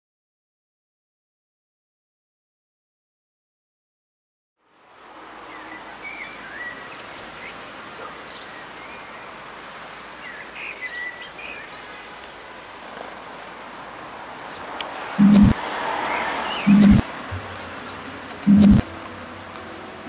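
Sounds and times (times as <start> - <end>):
steady background hiss: 4.6 - 20.0
songbirds chirping: 4.7 - 20.0.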